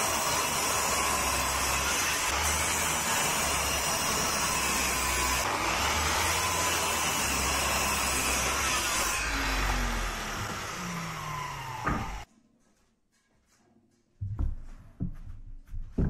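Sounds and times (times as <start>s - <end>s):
miter saw cutting wood: 0.0s - 12.3s.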